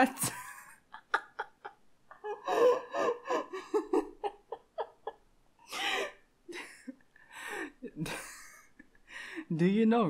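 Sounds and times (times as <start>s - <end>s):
young man laughing: 0.2s - 5.2s, 7.8s - 8.9s.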